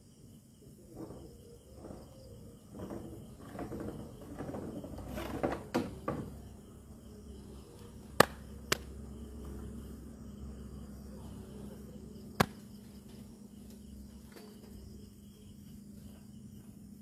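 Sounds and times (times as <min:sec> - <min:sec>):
faint steady hum: 0:00.0 - 0:17.0
rustling and scraping: 0:00.9 - 0:06.5.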